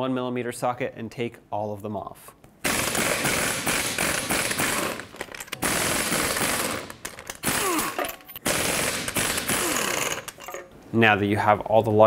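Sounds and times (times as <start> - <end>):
impact wrench rattling: 2.7 - 10.7.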